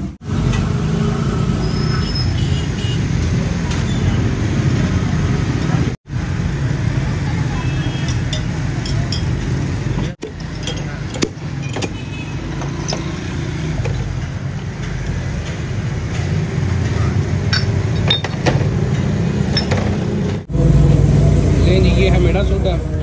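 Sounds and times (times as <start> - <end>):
street traffic rumble: 0.0 - 23.0
glass bottles and mugs clinking: 8.0 - 14.4, 17.5 - 20.0.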